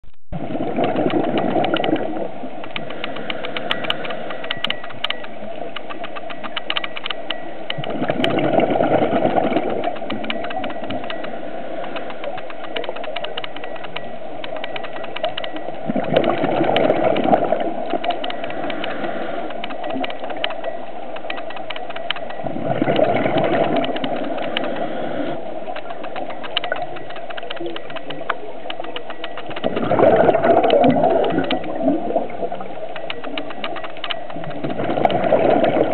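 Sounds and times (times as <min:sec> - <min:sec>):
steady underwater crackling: 0:00.0 - 0:35.9
scuba exhalation bubbling underwater: 0:00.3 - 0:02.4, 0:07.8 - 0:10.0, 0:15.8 - 0:18.1, 0:22.4 - 0:25.3, 0:29.6 - 0:32.7, 0:34.4 - 0:35.9.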